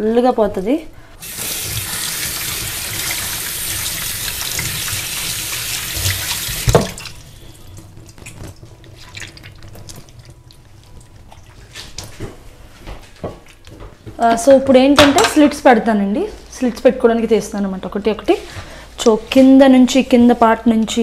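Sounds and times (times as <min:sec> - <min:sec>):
tap water running into sink: 0:01.2 - 0:07.3
water drips: 0:01.2 - 0:12.1.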